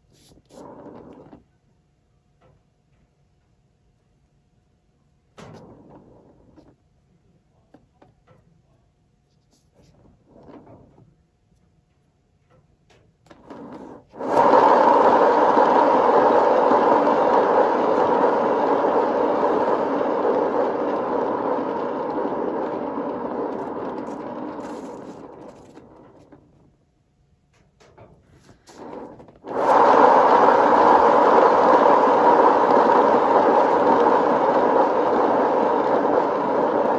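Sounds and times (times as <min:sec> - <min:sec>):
turntable whirring: 0:00.3 - 0:01.5, 0:13.3 - 0:26.8, 0:28.5 - 0:36.9.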